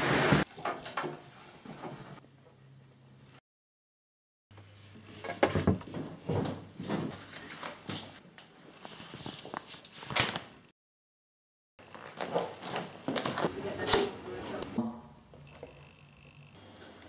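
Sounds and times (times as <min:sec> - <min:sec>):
household knocks and clatters: 0:05.2 - 0:07.2.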